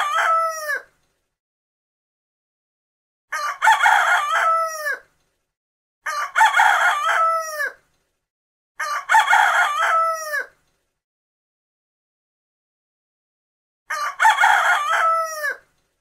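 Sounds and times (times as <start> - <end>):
rooster crowing: 0.0 - 0.9, 3.3 - 5.0, 6.0 - 7.8, 8.8 - 10.6, 13.9 - 15.7.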